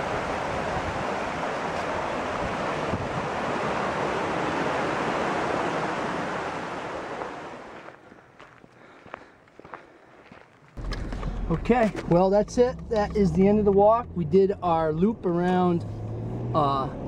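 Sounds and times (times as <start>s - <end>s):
water rushing over rocks: 0.0s - 7.8s.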